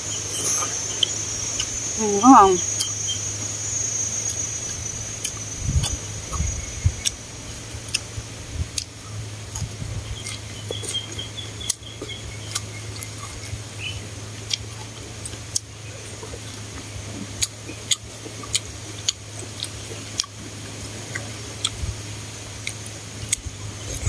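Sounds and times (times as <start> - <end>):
insect trill: 0.0 - 20.3
chewing: 0.3 - 3.2, 4.1 - 21.9, 22.5 - 24.0
wet mouth clicks: 5.2 - 7.2, 8.7 - 11.0.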